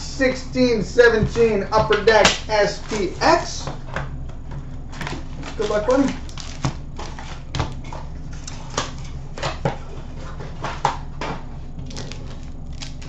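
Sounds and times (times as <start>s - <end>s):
steady low hum: 0.0s - 13.0s
foil pack handling: 5.2s - 7.5s.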